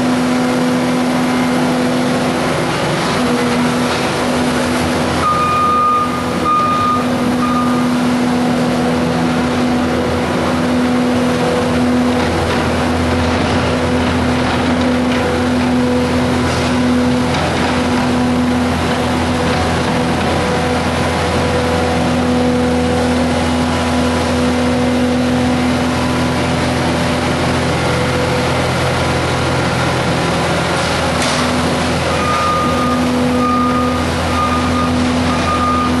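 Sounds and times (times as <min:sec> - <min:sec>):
diesel engine running: 0:00.0 - 0:36.0
hydraulic whine: 0:01.2 - 0:12.3, 0:30.8 - 0:36.0
short beeps: 0:05.2 - 0:07.9, 0:32.2 - 0:36.0.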